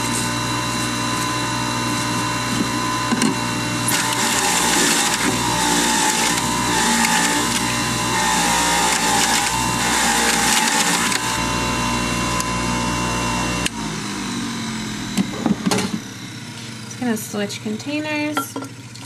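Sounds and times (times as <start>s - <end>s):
juicer motor humming: 0.0s - 19.0s
motor spinning down: 1.3s - 17.1s
produce being shredded: 3.9s - 11.4s.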